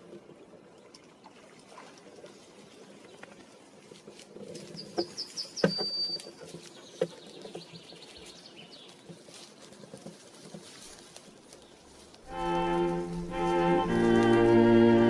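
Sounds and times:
low rustle: 2.0s - 15.0s
songbird chirping and whistling: 4.8s - 8.0s.

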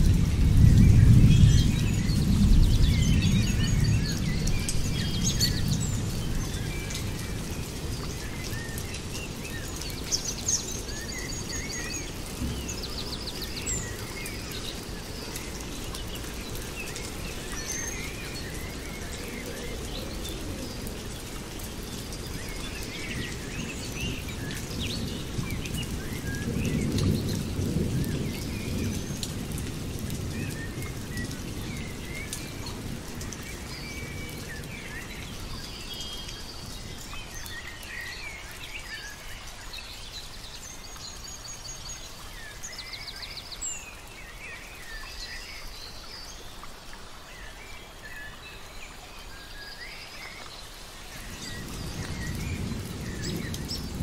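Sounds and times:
rain hissing: 0.0s - 54.0s
birds chirping and trilling: 30.2s - 54.0s.

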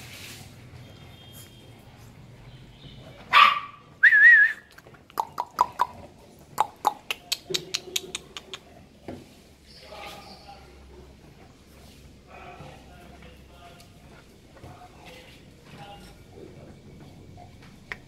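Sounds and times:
puppy yapping: 3.3s - 3.9s
puppy barking: 3.3s - 4.0s.

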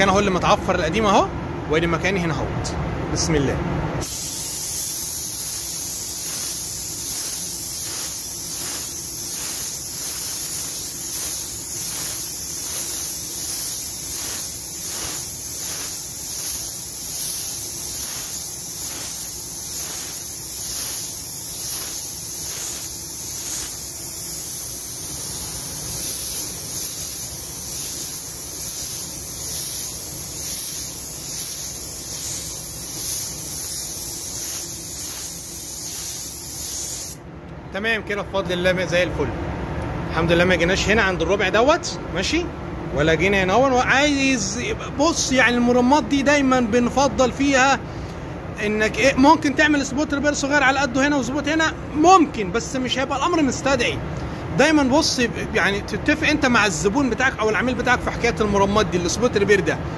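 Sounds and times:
paint spray gun hissing: 4.0s - 37.2s.

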